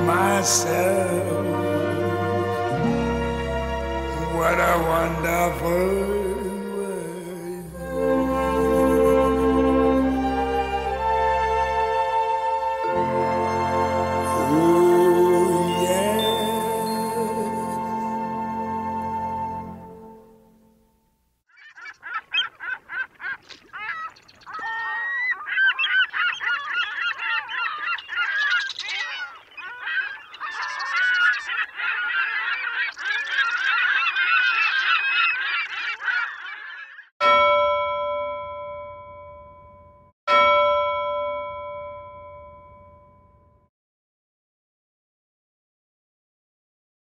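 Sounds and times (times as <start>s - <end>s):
geese honking: 0.0s - 19.7s, 21.5s - 37.1s
bell ringing: 37.2s - 43.6s.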